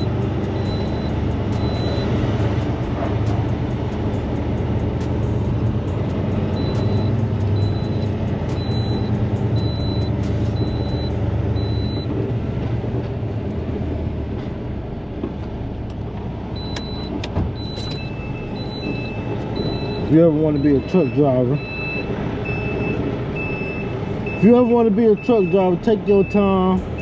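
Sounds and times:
backup alarm beeping: 0.0 - 2.2, 6.5 - 12.1, 16.6 - 27.0
lower beep: 0.0 - 2.2, 6.5 - 12.1, 16.6 - 27.0
diesel truck engine running: 0.0 - 27.0.

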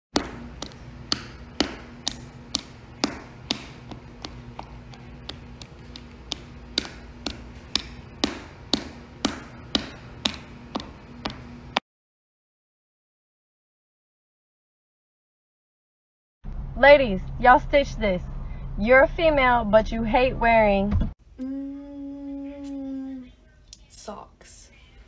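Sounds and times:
sharp taps: 0.2 - 11.5
faint steady hum: 0.2 - 11.8, 16.5 - 25.0.

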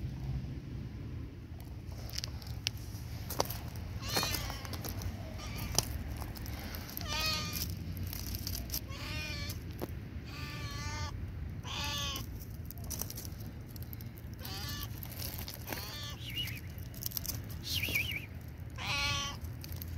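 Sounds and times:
cat meowing: 4.0 - 5.9, 7.0 - 7.7, 8.8 - 9.6, 10.2 - 12.3, 14.4 - 15.0, 15.6 - 16.6, 18.8 - 19.4.

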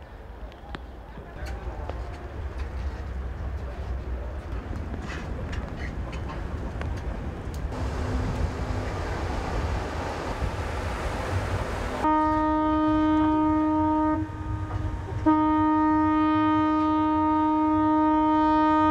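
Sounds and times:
steady rushing noise: 6.7 - 12.1
ship's horn blast: 11.8 - 18.9.

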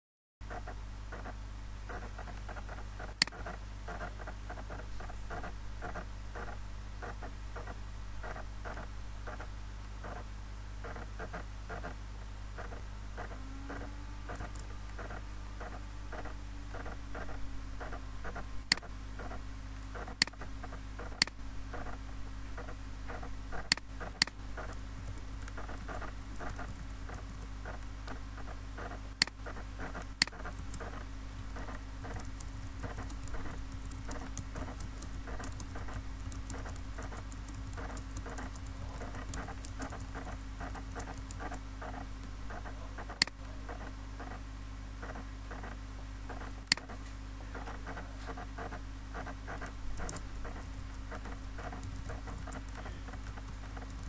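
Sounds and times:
steady low hum: 0.4 - 54.0
keyboard typing: 12.6 - 22.0, 22.6 - 44.4, 45.0 - 54.0
mouse clicks: 46.3 - 47.7.

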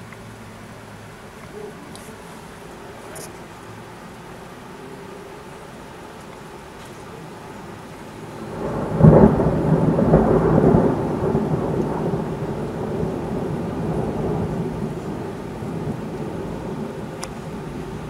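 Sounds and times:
thunder crack and rumble: 8.4 - 18.0.

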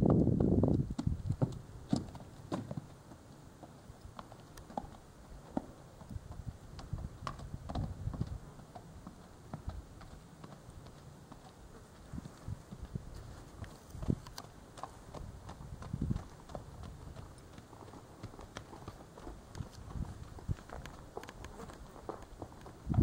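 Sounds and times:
hooves clopping on stony ground: 0.0 - 23.0.

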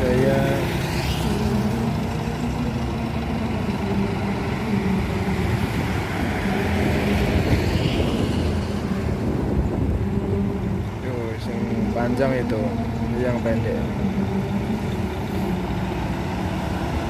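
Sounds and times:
coach diesel engines passing: 0.0 - 17.0.

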